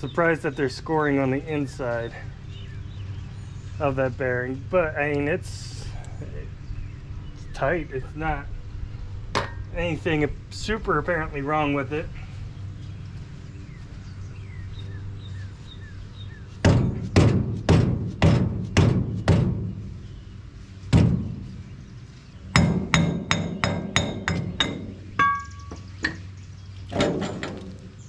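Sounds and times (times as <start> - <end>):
hammer striking metal wheel hub: 22.6 - 26.2.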